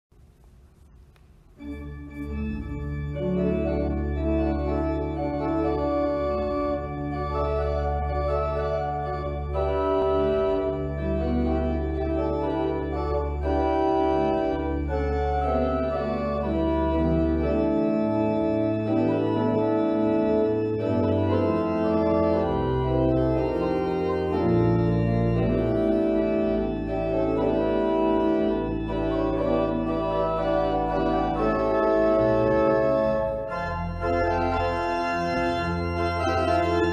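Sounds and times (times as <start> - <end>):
organ playing chords: 1.4 - 36.9.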